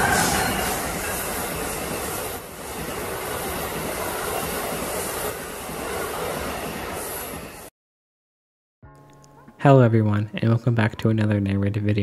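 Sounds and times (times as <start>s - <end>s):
train wheels rushing on rails: 0.0s - 7.7s.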